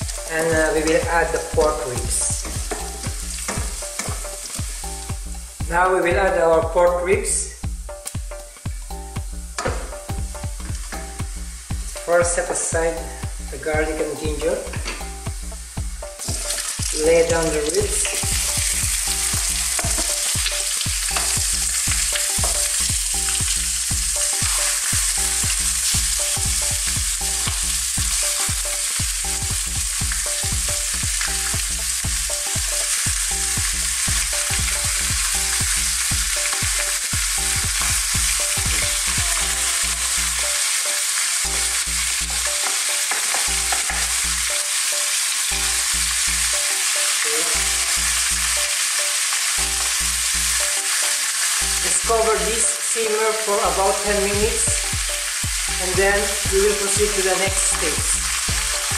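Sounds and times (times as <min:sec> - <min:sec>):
ribs sizzling in hot oil: 0:00.0 - 0:58.9.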